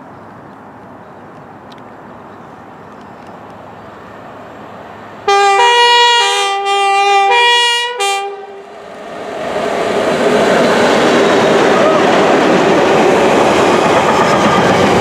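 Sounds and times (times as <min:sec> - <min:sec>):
train rumbling on rails: 0:00.2 - 0:15.0
two-tone locomotive horn: 0:05.3 - 0:08.7.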